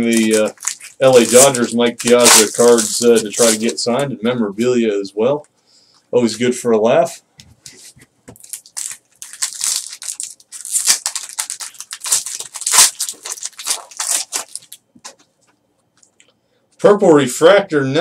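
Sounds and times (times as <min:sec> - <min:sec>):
foil wrapper tearing and crinkling: 0:00.0 - 0:03.9, 0:08.4 - 0:14.8.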